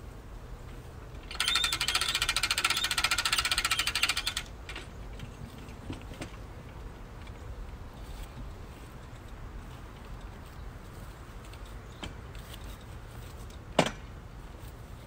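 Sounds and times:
winch ratchet clicking: 1.2s - 4.8s.

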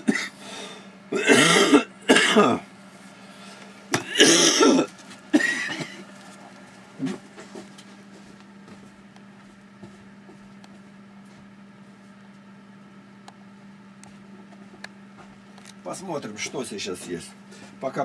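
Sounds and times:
man coughing: 0.0s - 0.4s, 1.1s - 2.7s, 3.9s - 6.1s.

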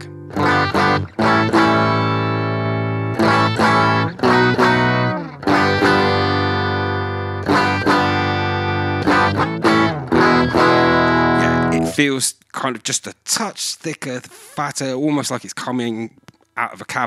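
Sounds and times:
electric guitar strumming chords: 0.0s - 12.0s.

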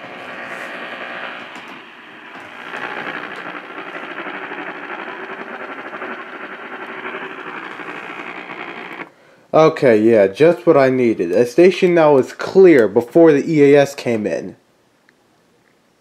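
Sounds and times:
faint radio broadcast: 0.0s - 9.1s
radio static and interference: 0.0s - 9.1s.

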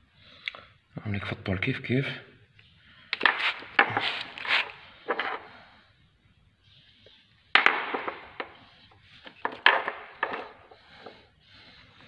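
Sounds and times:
metal parts clacking on stone floor: 5.1s - 5.5s, 9.2s - 10.8s.

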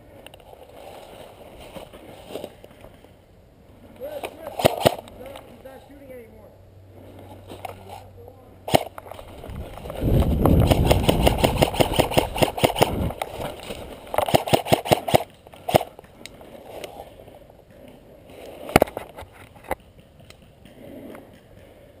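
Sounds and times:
airsoft rifle firing: 4.5s - 5.1s, 8.7s - 9.0s, 10.6s - 13.2s, 14.1s - 16.0s.

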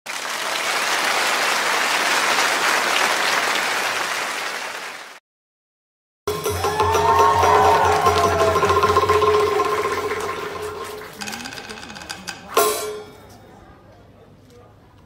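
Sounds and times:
crowd applause: 0.1s - 5.2s, 6.4s - 12.5s.

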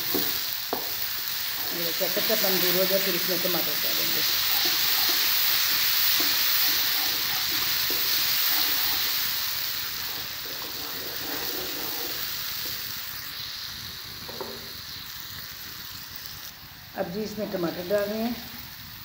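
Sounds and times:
wooden spoon stirring: 0.0s - 12.9s
onions sizzling in a wok: 0.0s - 19.0s.

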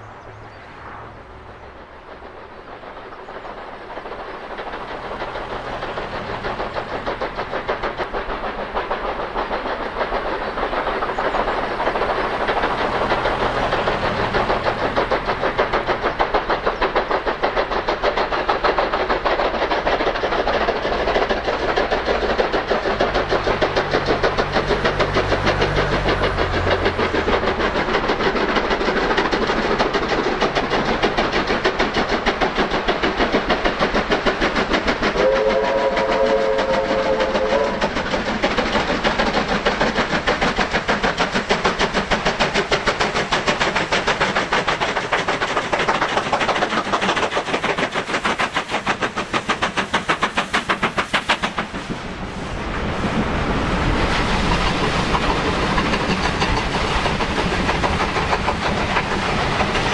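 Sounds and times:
steam locomotive exhaust beats: 0.0s - 59.9s.

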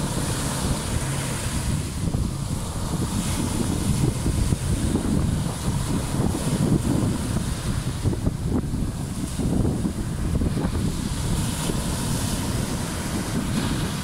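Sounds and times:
small waves breaking on beach: 0.0s - 14.0s
wind buffeting microphone: 0.0s - 14.0s.

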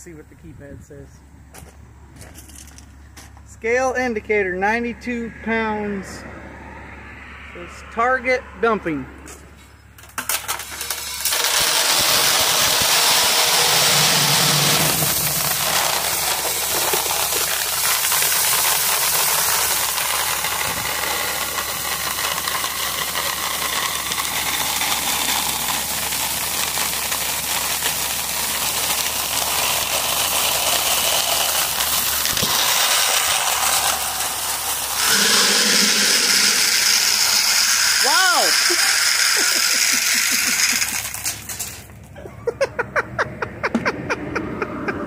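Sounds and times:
corn kernels pouring onto concrete: 10.2s - 42.0s.

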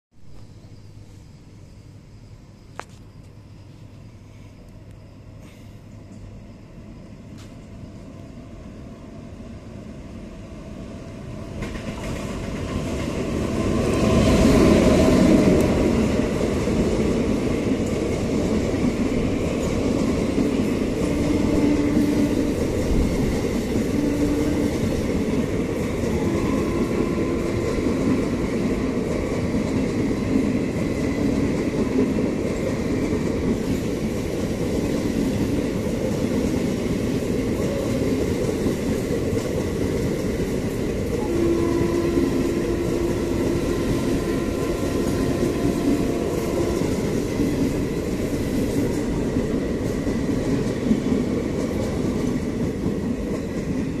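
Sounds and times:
train wheels rumbling on rails: 0.1s - 54.0s
faint wheel whine: 0.3s - 9.9s
clickety-clack over rail joints: 11.2s - 54.0s.

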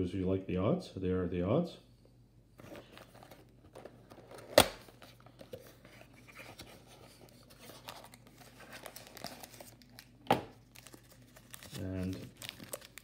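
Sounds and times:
cardboard box and foil packs rustling: 2.6s - 13.0s.

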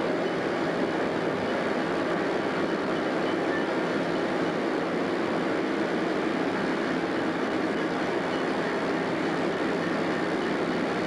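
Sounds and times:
diesel locomotive running: 0.0s - 11.0s.

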